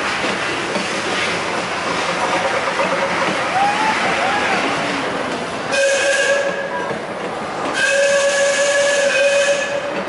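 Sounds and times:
steam locomotive whistle: 5.7s - 6.7s, 7.7s - 10.0s.

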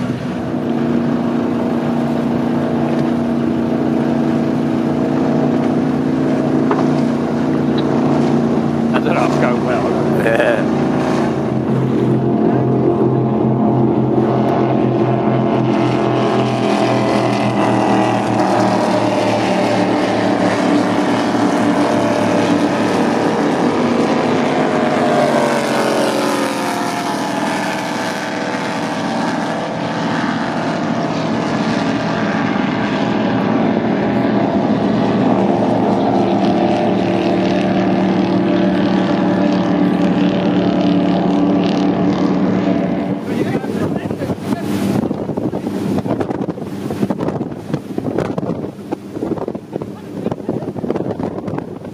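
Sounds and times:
powerboat engines running: 0.0s - 51.9s
racing powerboat passing by: 0.0s - 51.9s.

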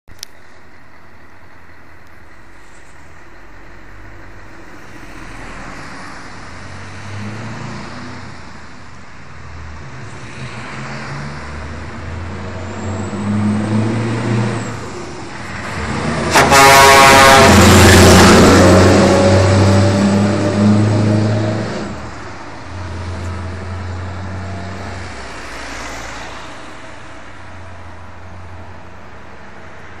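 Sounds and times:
diesel truck engine accelerating: 3.6s - 26.4s
truck horn blast: 15.8s - 22.0s.

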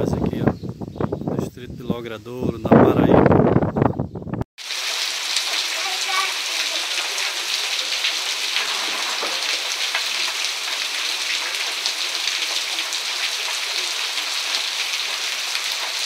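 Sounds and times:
heavy rain on wet street: 4.6s - 16.0s
raindrops ticking: 4.6s - 16.0s.

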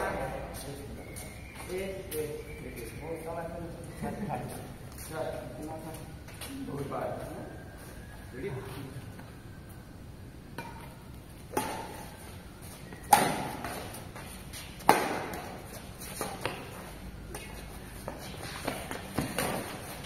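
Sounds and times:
rackets striking shuttlecock: 10.5s - 12.2s, 12.9s - 16.7s.

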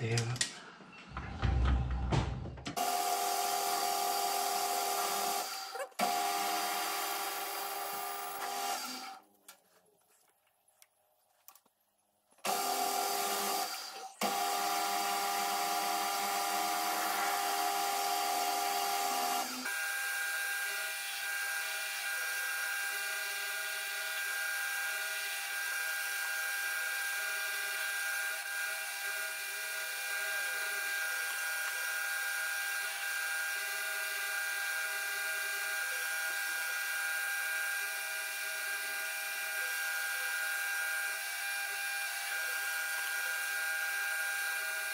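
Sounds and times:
metal lathe whining: 12.5s - 44.9s.

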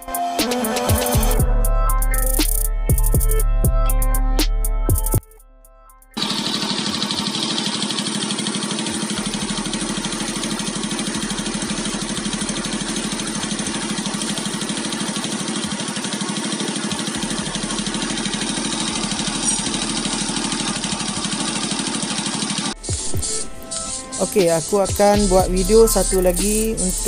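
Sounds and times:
motorcycle engine idling: 6.2s - 27.0s.

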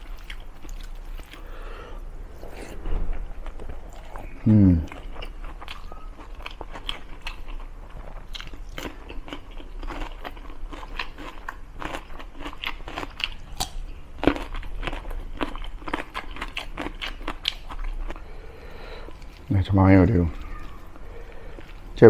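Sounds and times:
crunchy chewing: 0.0s - 1.7s, 2.4s - 19.5s.

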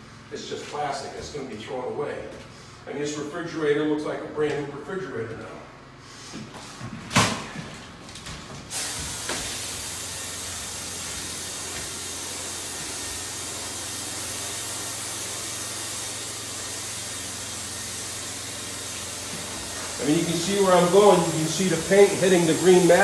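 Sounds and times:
spray gun hissing: 8.7s - 23.0s.

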